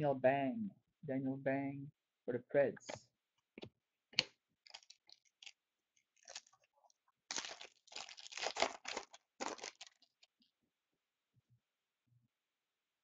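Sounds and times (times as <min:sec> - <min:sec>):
foil wrapper crinkling and tearing: 0:04.6 - 0:06.7, 0:07.3 - 0:10.3.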